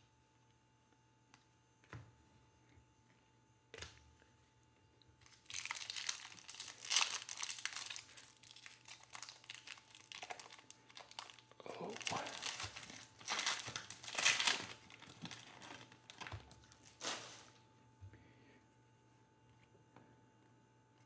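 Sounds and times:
foil wrapper crinkling: 5.2 - 17.6.

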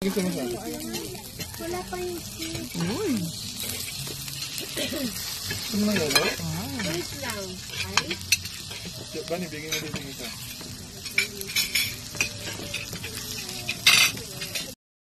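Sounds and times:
food sizzling on a hot plate: 0.0 - 14.8
metal spoon scraping a plate: 3.4 - 14.8.

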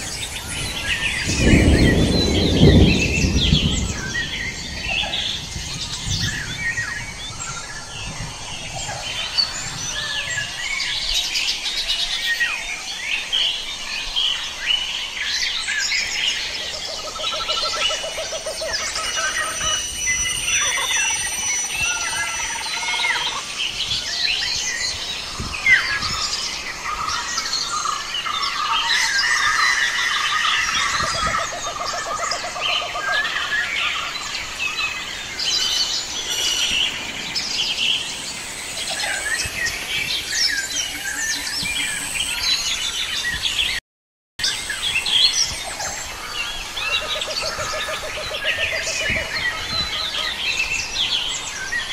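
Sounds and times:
chorus of forest birds: 0.0 - 43.8, 44.4 - 51.9.

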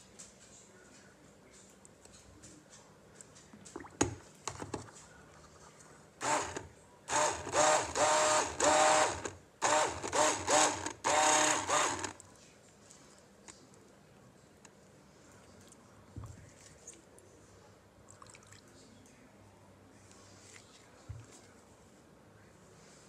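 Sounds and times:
stick blender motor: 6.2 - 12.2.

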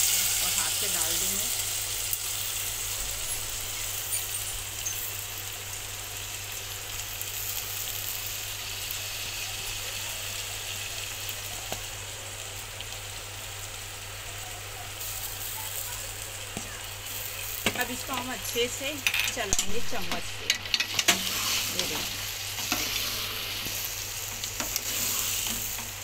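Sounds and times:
hot oil sizzling in a pot: 0.0 - 26.0.

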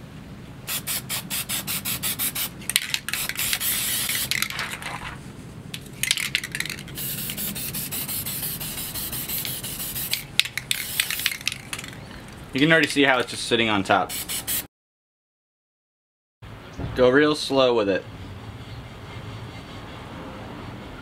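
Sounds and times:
spray paint can hissing: 0.7 - 5.0, 6.0 - 12.1, 14.1 - 14.7.

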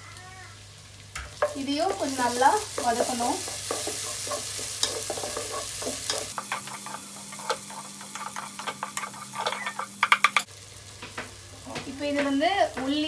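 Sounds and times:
onion and tomato sizzling in oil: 0.0 - 13.0
wooden spatula scraping a pot: 1.4 - 10.4.

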